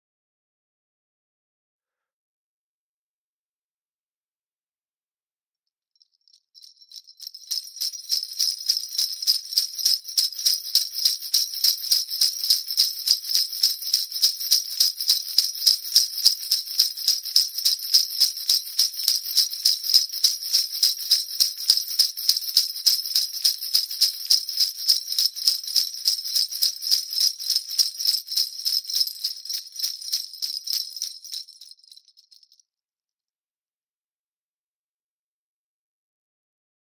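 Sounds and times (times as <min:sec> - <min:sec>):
sleigh bells shaken: 0:06.0 - 0:32.6.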